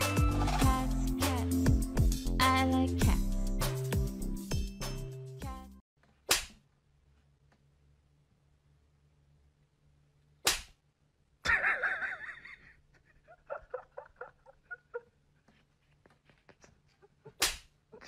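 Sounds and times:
sharp slap: 0:06.2 - 0:06.6, 0:10.4 - 0:10.8, 0:17.4 - 0:17.7.

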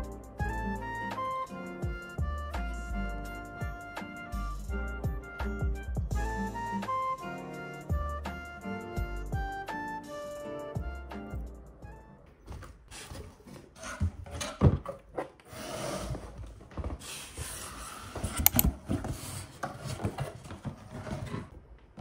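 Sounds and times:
cardboard flaps scraping: 0:12.4 - 0:21.8.

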